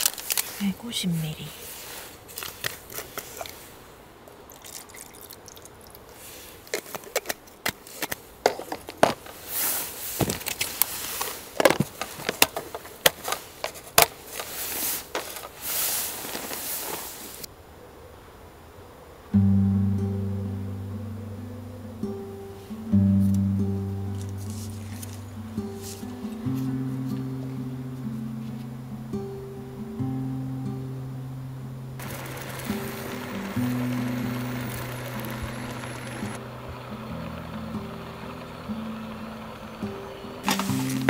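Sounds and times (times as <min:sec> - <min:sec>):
heat pack crackling and popping: 0:00.0 - 0:00.6, 0:02.1 - 0:03.7, 0:06.6 - 0:17.5, 0:32.0 - 0:41.0
hissing steam: 0:09.3 - 0:12.1, 0:14.4 - 0:17.5, 0:32.0 - 0:41.0
strummed guitar music: 0:19.4 - 0:41.0.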